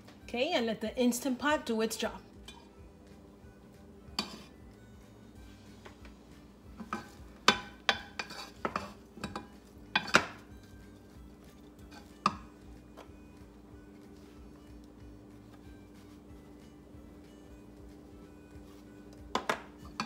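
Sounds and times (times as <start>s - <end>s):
wooden spoon clacking on saucepan: 6.9s - 10.4s.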